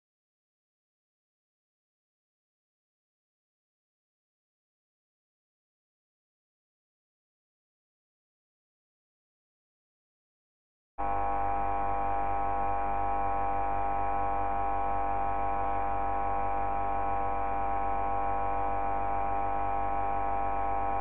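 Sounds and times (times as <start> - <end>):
loud steady hum of held tones: 11.0 - 21.0.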